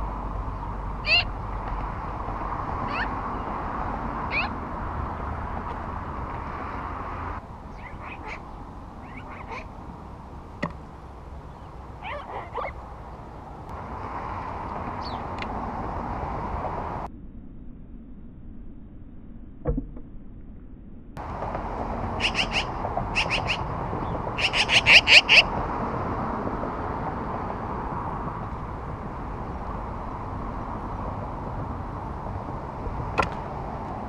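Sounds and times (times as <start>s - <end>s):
magpie calling: 1.0s - 1.4s, 2.9s - 3.2s, 4.3s - 4.6s, 7.7s - 9.7s, 11.5s - 12.8s, 22.2s - 23.7s, 24.3s - 25.5s
steady background noise: 21.1s - 34.0s.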